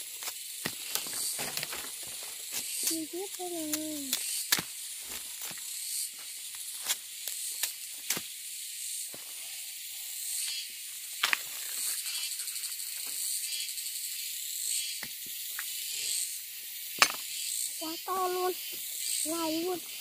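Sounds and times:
high-pitched insect buzzing: 0.0 - 20.0
sharp clicks and snaps: 2.8 - 4.7.

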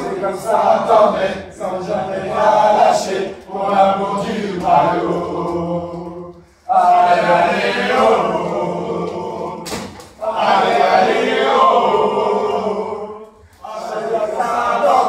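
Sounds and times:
group chanting: 0.0 - 15.0.

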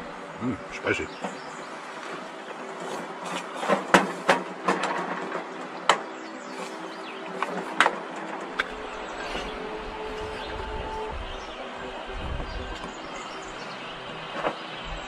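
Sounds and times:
steady low hum: 6.4 - 15.0.

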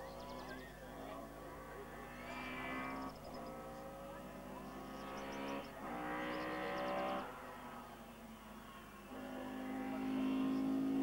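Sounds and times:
rally car engine pulling through gears: 0.0 - 8.0.

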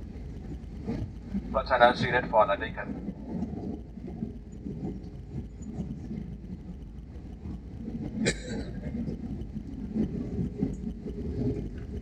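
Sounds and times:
aircraft engines rumbling: 0.0 - 12.0.

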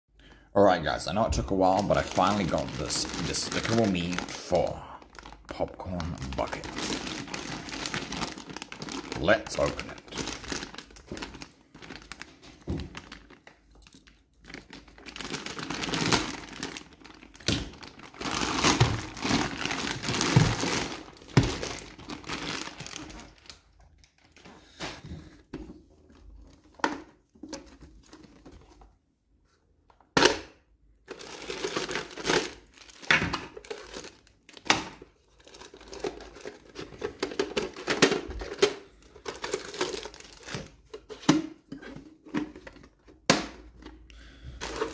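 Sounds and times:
plastic bag crinkling: 0.8 - 24.8, 31.1 - 41.0, 44.5 - 44.9.

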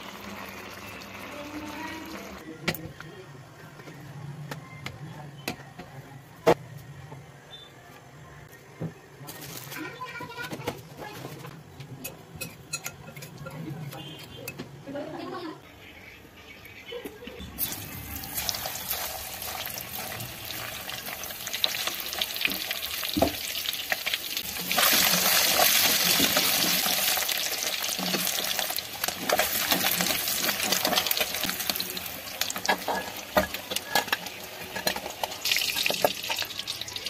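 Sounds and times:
hot oil sizzling: 0.0 - 2.4, 17.4 - 37.0.

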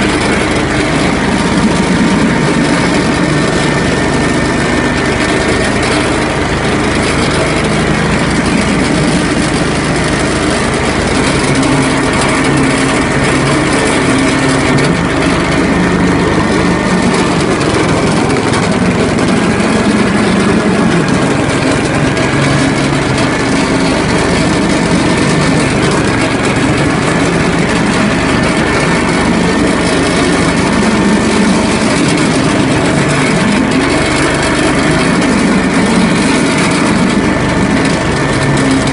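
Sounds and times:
single-cylinder engine running: 0.0 - 38.9.

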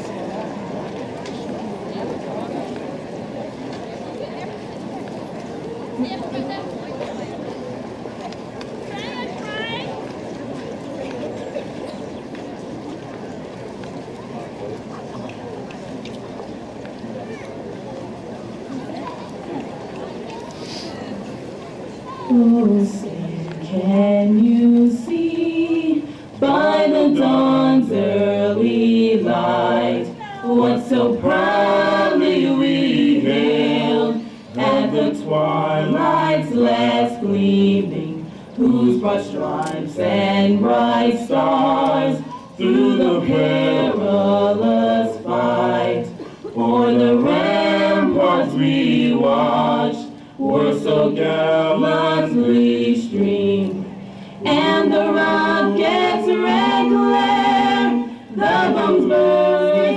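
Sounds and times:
group singing in harmony: 22.3 - 59.9.

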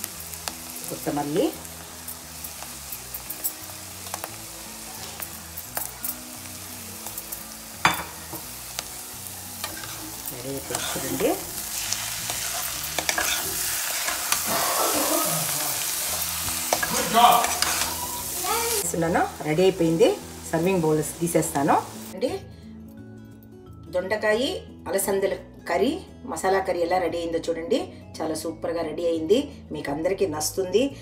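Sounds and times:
curry sizzling in a pan: 0.0 - 22.2
spatula scraping a pan: 9.6 - 18.3.

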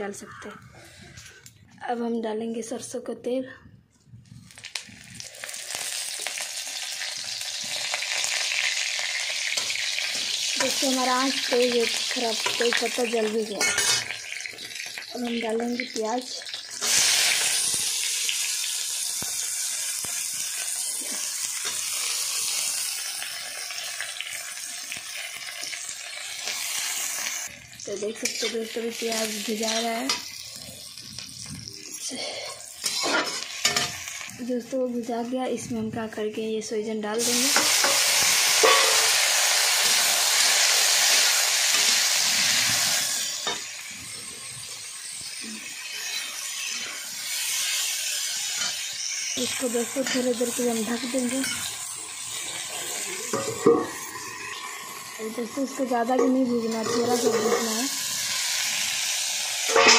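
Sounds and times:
onions sizzling in oil: 4.5 - 59.9.

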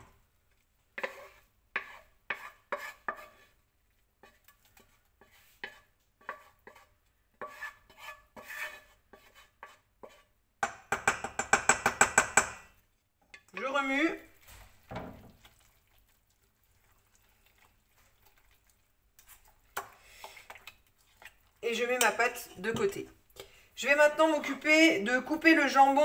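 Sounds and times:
fast stirring in a bowl: 1.0 - 3.6, 4.2 - 10.3, 13.4 - 26.0
utensil scraping against pan: 1.0 - 3.6, 4.2 - 10.3.

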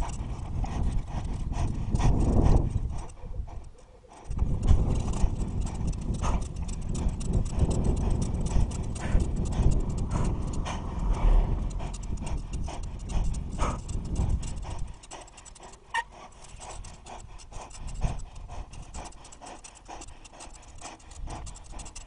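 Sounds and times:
bicycle rattling and clicking: 0.0 - 22.0
wind on microphone: 0.0 - 22.0.

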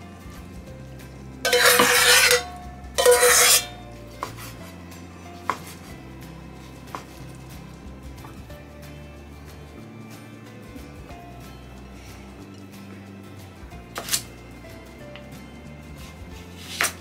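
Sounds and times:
metal pot scraping: 1.4 - 6.0.

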